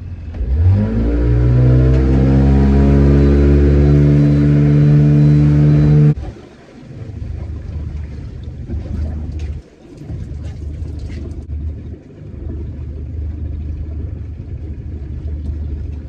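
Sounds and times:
boat engine revving: 0:00.0 - 0:09.3
low rumble: 0:00.0 - 0:16.0.

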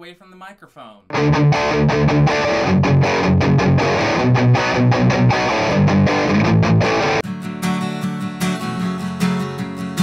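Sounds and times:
electric guitar through amplifier: 0:01.1 - 0:07.2
acoustic guitar strummed: 0:01.1 - 0:10.0.

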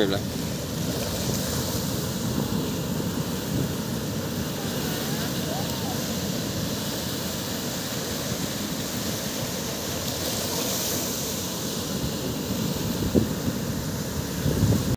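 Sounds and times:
surf breaking on shore: 0:00.0 - 0:14.9
wave splashing over boat: 0:00.0 - 0:14.9.

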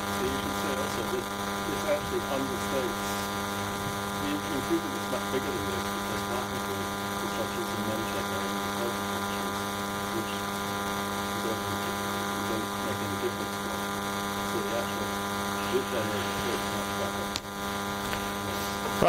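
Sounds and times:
electrical mains hum: 0:00.0 - 0:19.0
faint distant voice: 0:14.5 - 0:17.3.

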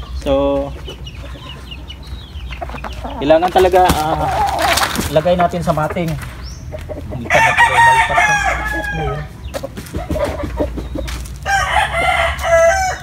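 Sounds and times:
rustling: 0:02.7 - 0:06.6
rooster crowing: 0:07.3 - 0:09.3, 0:11.4 - 0:13.0.

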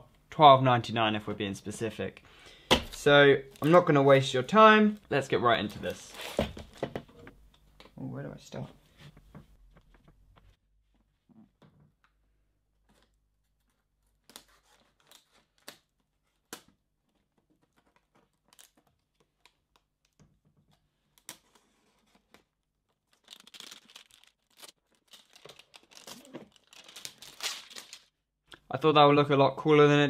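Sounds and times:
shrink-wrap crinkling and tearing: 0:17.5 - 0:20.2, 0:22.9 - 0:28.2.

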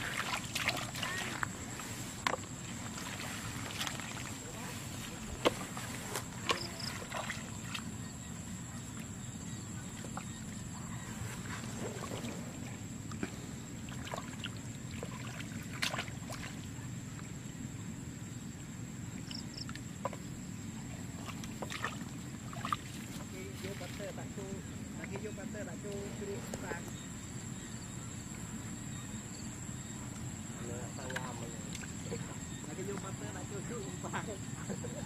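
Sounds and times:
hands splashing in muddy water: 0:00.0 - 0:07.9, 0:11.4 - 0:16.7, 0:21.2 - 0:24.0.

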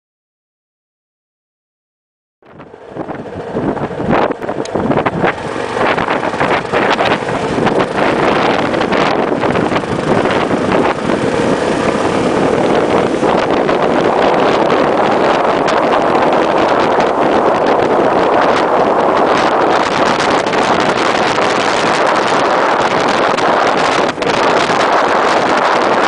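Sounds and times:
vehicle engine and road noise: 0:02.4 - 0:26.0
wind buffeting microphone: 0:02.4 - 0:26.0.

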